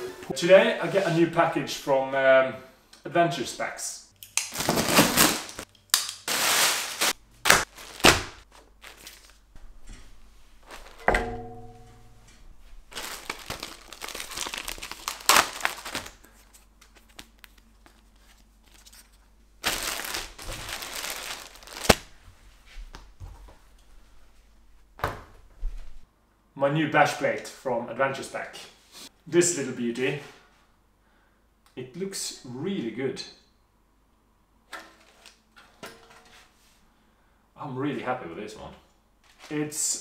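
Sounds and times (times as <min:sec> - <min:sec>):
plastic bags crinkling: 0:04.4 - 0:09.5, 0:10.6 - 0:11.1, 0:12.6 - 0:22.2.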